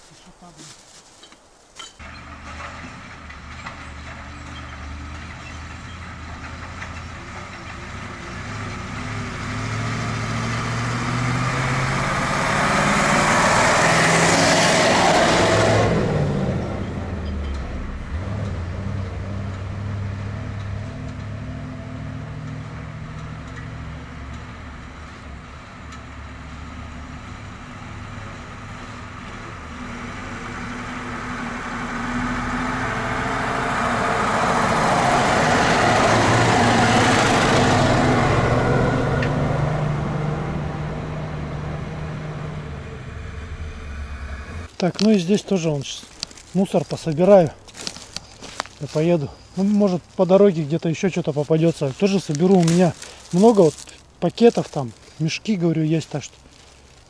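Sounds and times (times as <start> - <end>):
vehicle passing by: 2.3 - 25.5, 26.1 - 57.0
vehicle engine running: 16.2 - 57.0.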